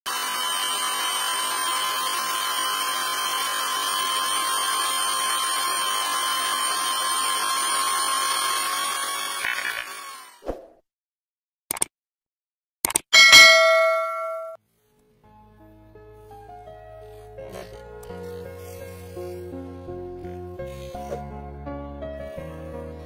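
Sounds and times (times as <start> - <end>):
electric hand drill running: 0.1 - 10.4, 17.1 - 23.0.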